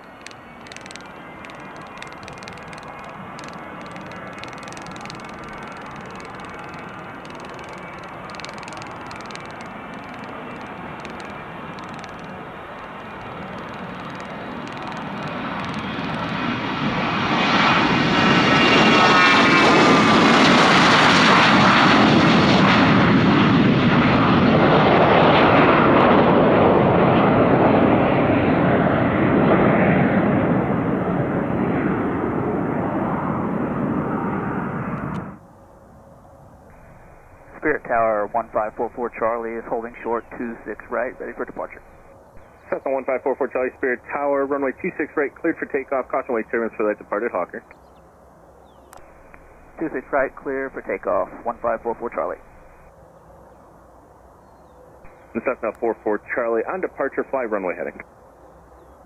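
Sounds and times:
jet taking off and passing: 0.0s - 35.4s, 36.3s - 48.2s, 48.9s - 52.9s.

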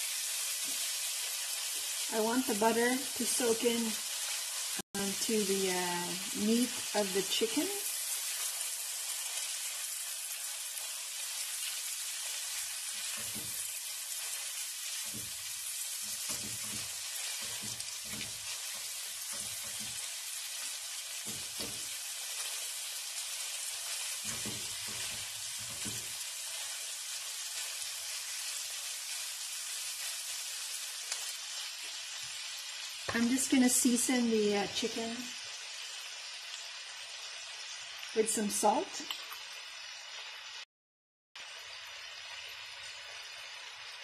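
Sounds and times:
chicken sizzling in a pan: 0.0s - 40.7s, 41.4s - 44.0s
spatula scraping a pan: 11.6s - 22.7s.

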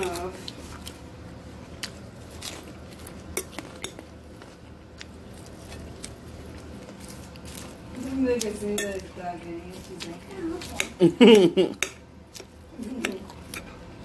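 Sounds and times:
low steady hum: 0.0s - 14.0s
fork clinking against bowl: 3.4s - 4.1s, 8.8s - 9.0s.

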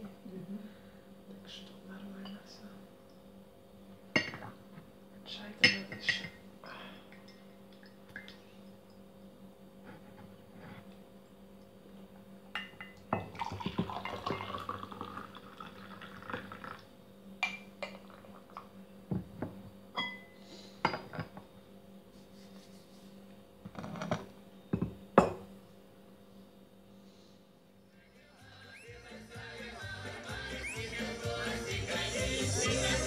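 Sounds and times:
faint steady hum: 0.0s - 33.0s
cups and cutlery clinking: 4.2s - 4.5s, 12.6s - 15.2s, 17.4s - 18.2s, 19.2s - 21.4s, 24.8s - 25.5s
liquid pouring into cup: 13.2s - 16.9s.

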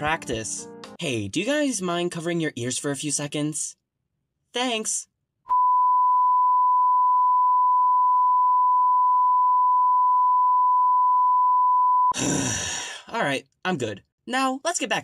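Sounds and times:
censor bleep: 5.5s - 12.2s.

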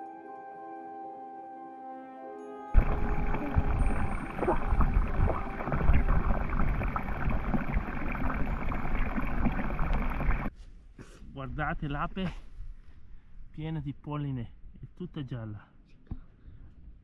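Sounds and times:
water pouring into a trough: 2.8s - 10.5s.

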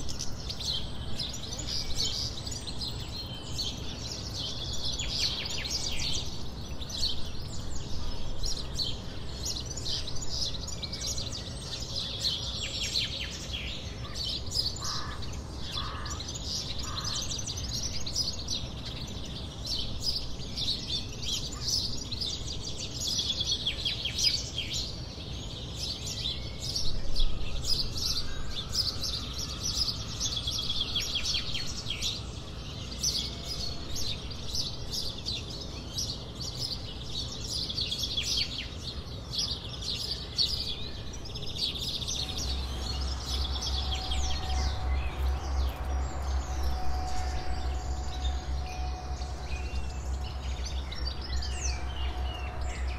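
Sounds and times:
songbirds chirping and trilling: 0.0s - 52.9s
low pulsing rumble: 41.0s - 52.9s
wind rumble: 41.1s - 52.9s.

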